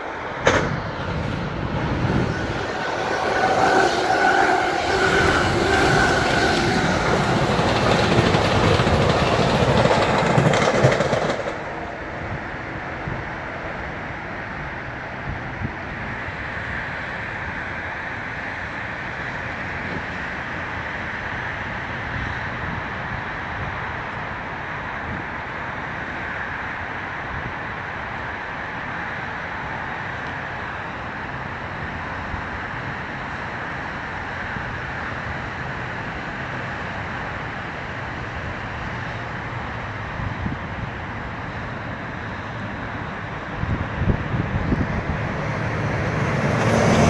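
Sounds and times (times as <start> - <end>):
wind: 0.0 - 47.0
distant road traffic: 23.2 - 47.0.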